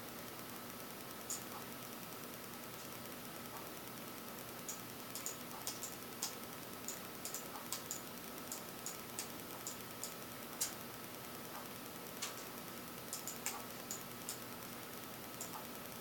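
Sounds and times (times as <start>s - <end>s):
computer mouse clicks: 4.7s - 10.8s, 11.6s - 12.5s, 13.1s - 14.4s, 15.4s - 15.7s.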